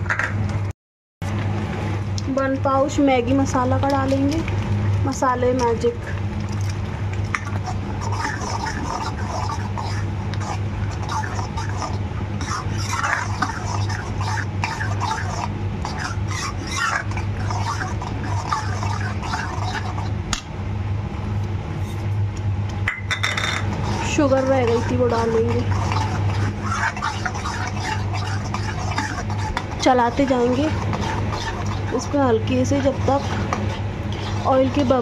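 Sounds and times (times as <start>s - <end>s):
steady low hum: 0.0s - 35.0s
spoon scraping metal pan: 7.4s - 20.1s, 23.1s - 35.0s.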